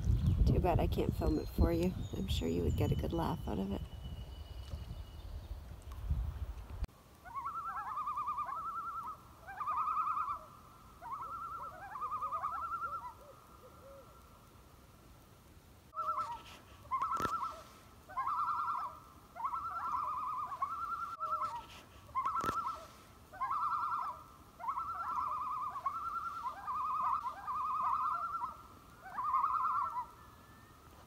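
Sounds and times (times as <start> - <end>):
animal pulsed trills: 7.2 - 14.0, 16.0 - 30.8.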